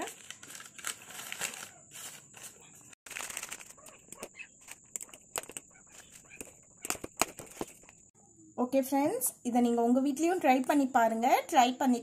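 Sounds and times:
newspaper crinkling and rustling: 0.0s - 7.8s
sharp clicks and taps: 4.1s - 5.7s, 6.4s - 8.0s.

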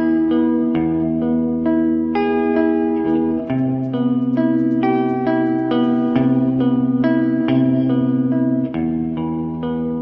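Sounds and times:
sustained melodic notes: 2.4s - 8.4s.

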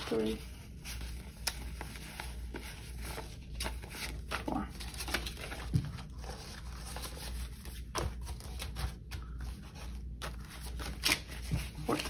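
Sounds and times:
low steady hum: 0.0s - 12.0s
paper money rustling: 0.0s - 12.0s.

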